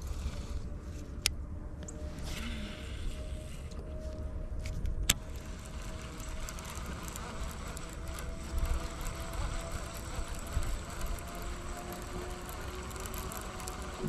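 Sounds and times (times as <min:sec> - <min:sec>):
electric motor whining: 0:02.0 - 0:14.0.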